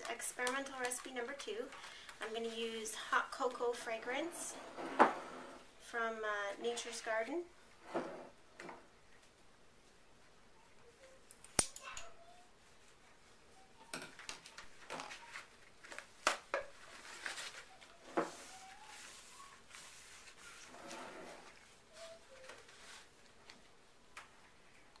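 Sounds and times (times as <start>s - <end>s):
rustling: 12.1s - 23.8s.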